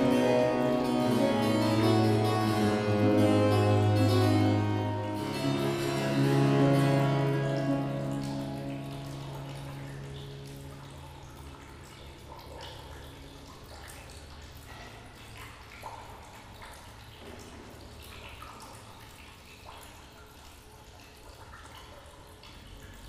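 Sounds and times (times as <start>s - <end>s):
music note: 0.0s - 10.5s
water dripping: 0.0s - 23.0s.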